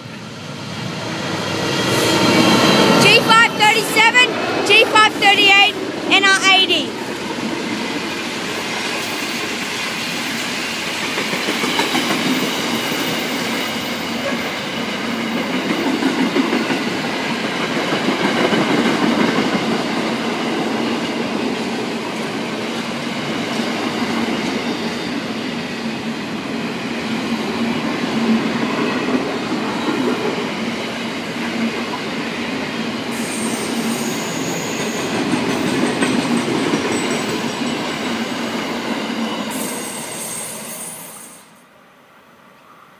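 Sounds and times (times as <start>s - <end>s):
train wheels rumbling on track: 0.0s - 41.6s
train wheel squeal: 8.0s - 17.0s, 31.8s - 41.7s.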